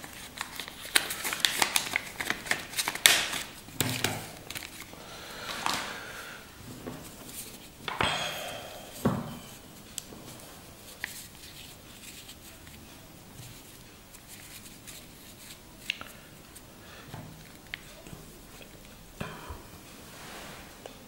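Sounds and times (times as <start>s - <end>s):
fabric rustle: 20.0s - 21.0s.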